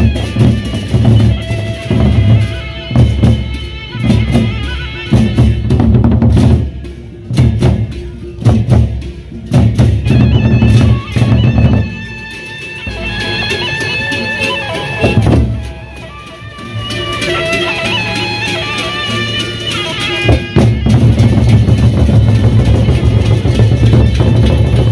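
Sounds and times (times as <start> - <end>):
barrel drums beaten with sticks: 0.0 - 12.0, 15.0 - 15.8, 19.6 - 24.9.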